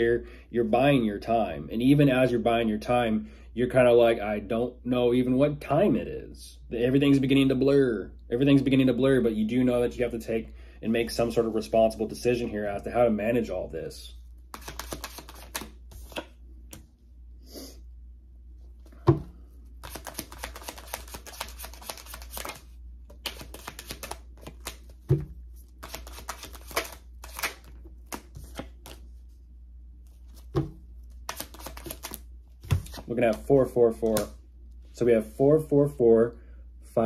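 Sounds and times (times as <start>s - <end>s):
cards shuffling: 14.4s - 16.8s, 19.7s - 29.3s, 30.0s - 34.4s.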